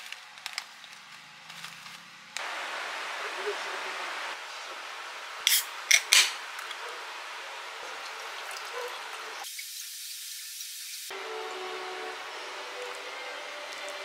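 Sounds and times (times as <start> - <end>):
can cracked open hissing: 5.5 - 6.4.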